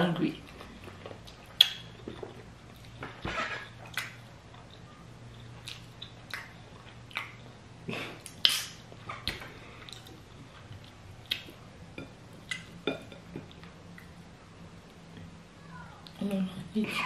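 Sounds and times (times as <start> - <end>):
wet mouth smacks and chewing: 1.0 - 2.0, 5.4 - 7.5, 8.2 - 11.6, 12.4 - 12.7.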